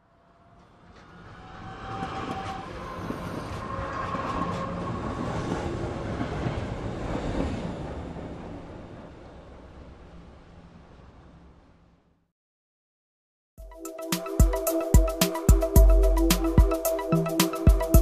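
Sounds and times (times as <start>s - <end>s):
train rumbling on rails: 0.0s - 11.8s.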